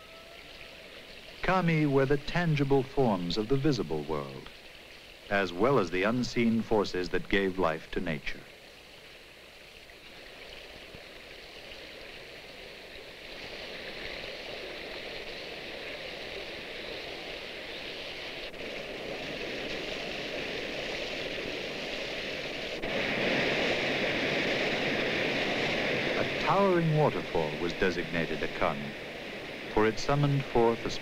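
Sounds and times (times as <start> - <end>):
water rushing over rocks: 0.0 - 8.6, 9.2 - 31.0
waterfall roaring: 25.5 - 29.0, 29.7 - 31.0.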